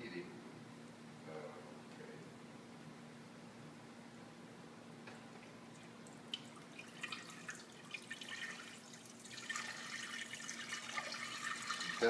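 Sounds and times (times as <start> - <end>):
liquid pouring into a pot: 6.4 - 12.0.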